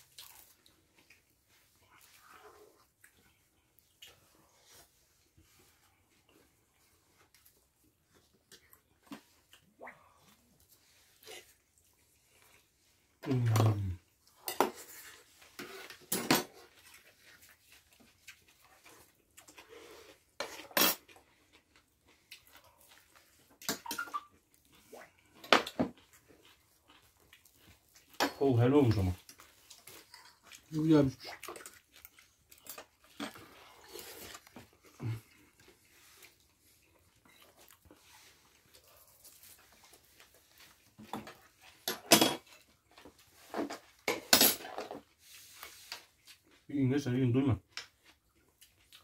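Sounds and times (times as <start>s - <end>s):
cutlery clinking against plates: 14.4s - 15.0s, 15.6s - 16.7s, 23.6s - 24.3s, 41.0s - 42.6s, 43.5s - 45.0s.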